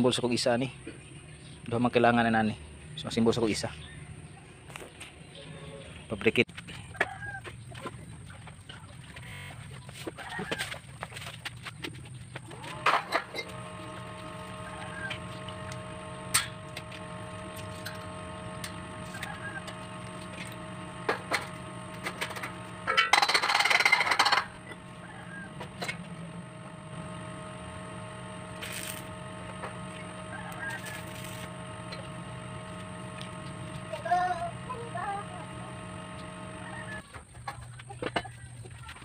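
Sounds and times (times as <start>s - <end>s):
chickens clucking: 17.2s - 28.4s, 29.1s - 33.9s.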